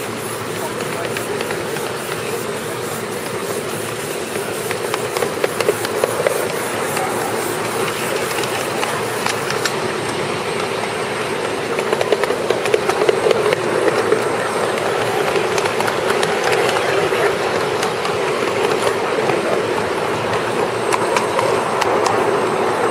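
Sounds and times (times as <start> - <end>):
sharp rail clicks: 0.0 - 22.9
train wheels rumbling on track: 0.0 - 22.9.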